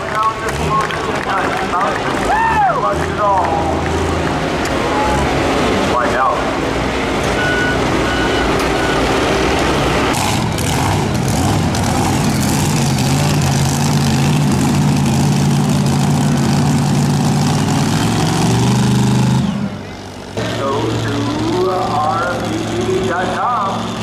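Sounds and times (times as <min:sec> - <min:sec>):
loader diesel engine running: 0:00.0 - 0:24.0
tractor diesel engine idling: 0:00.0 - 0:24.0
short electronic beeps: 0:07.3 - 0:09.1.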